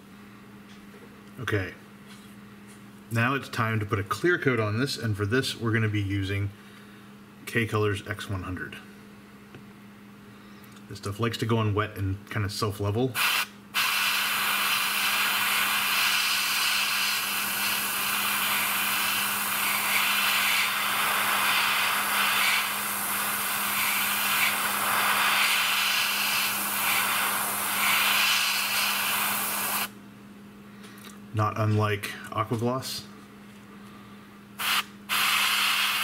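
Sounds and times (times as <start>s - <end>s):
airbrush spraying hiss: 13.2s - 29.9s, 34.6s - 36.0s.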